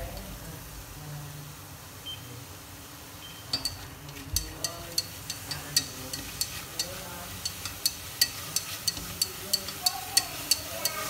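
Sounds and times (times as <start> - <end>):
meat sizzling: 0.0 - 11.0
chopsticks clicking on metal pot: 3.5 - 11.0.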